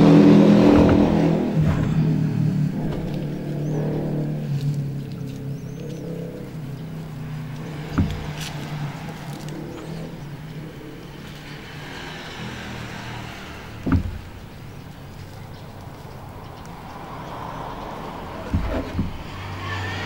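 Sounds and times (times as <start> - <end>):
sharp thumps: 0.0 - 10.4, 13.7 - 15.3, 18.3 - 19.6
rustling of loose fibres: 0.1 - 20.0.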